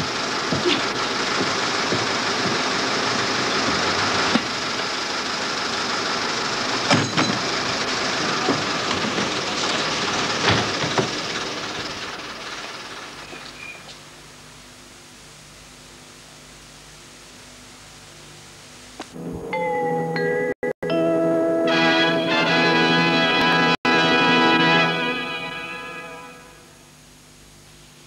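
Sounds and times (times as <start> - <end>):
equipment knocks and thuds: 0.5 - 2.7.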